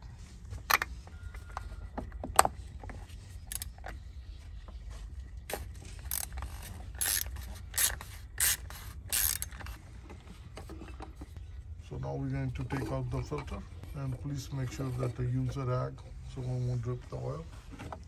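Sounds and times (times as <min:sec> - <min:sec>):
ratchet wrench clicking: 0:03.5 - 0:03.7, 0:06.0 - 0:09.8.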